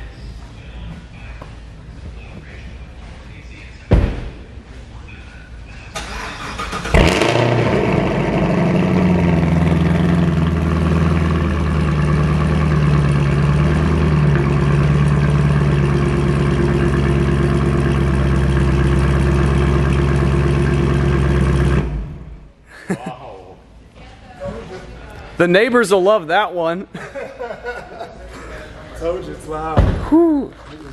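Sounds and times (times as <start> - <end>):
car engine starting and idling: 5.9 - 22.6.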